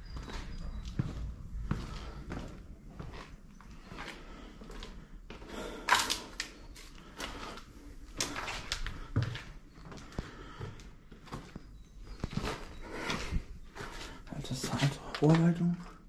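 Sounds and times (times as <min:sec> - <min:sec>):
footsteps: 0:00.0 - 0:16.0
scuffs and scrapes: 0:11.3 - 0:15.6.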